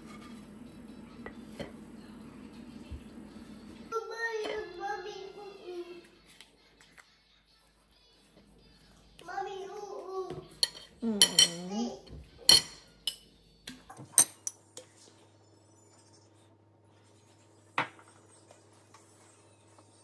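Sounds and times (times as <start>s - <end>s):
knife and dishes clinking: 10.6s - 11.7s, 12.4s - 13.3s, 14.0s - 14.6s.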